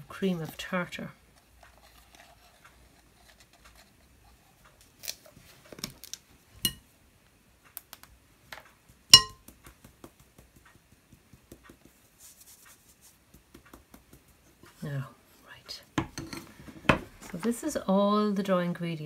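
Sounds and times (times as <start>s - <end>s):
sieve tapping over bowl: 9.1s - 12.0s
utensils clinking against ceramic bowl: 9.2s - 9.4s.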